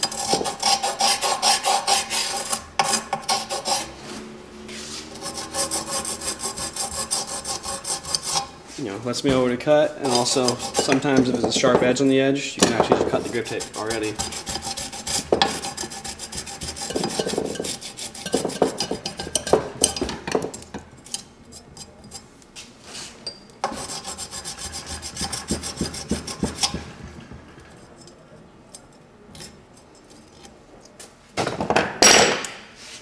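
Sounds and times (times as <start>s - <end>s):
wrench scraping grip tape: 0.0s - 3.9s, 4.8s - 8.5s, 10.0s - 12.0s, 12.8s - 22.3s, 27.7s - 31.2s.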